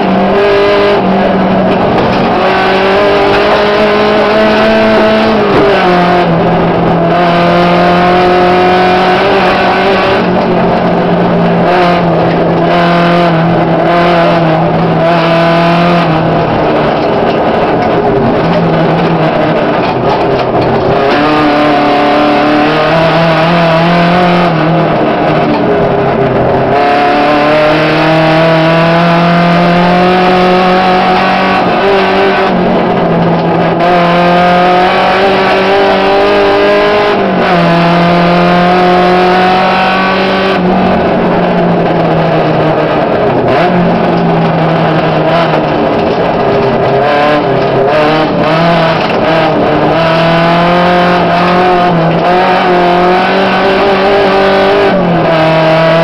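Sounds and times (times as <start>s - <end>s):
rally car engine revving: 0.0s - 56.0s.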